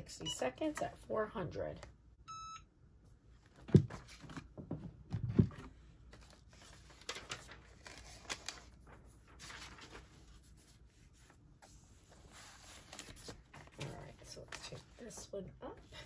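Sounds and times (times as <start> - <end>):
paper rustling and sliding: 5.4 - 15.0.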